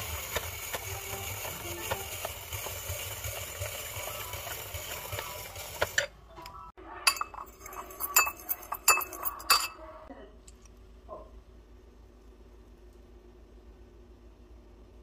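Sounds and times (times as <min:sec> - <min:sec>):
fork whisking in ceramic bowl: 0:00.0 - 0:06.1, 0:07.1 - 0:09.6
hand-crank spiralizer grinding: 0:00.0 - 0:06.2
fork clinking against bowl: 0:07.1 - 0:09.8.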